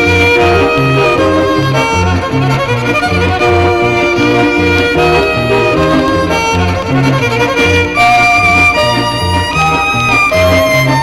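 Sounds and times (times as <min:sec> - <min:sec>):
fiddle playing quick melody: 0:00.0 - 0:11.0
steady bass accompaniment: 0:00.0 - 0:11.0.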